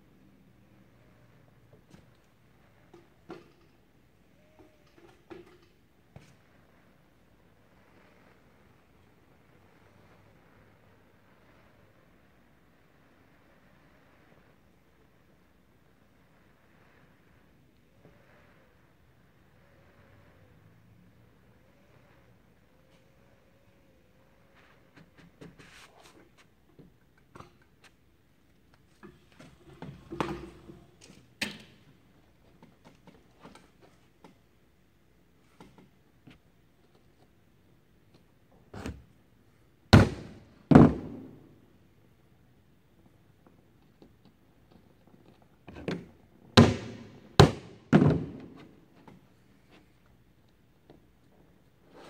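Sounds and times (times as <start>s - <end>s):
hammer striking wood: 40.0s - 41.3s, 46.6s - 48.6s
loud knocks: 46.6s - 48.6s.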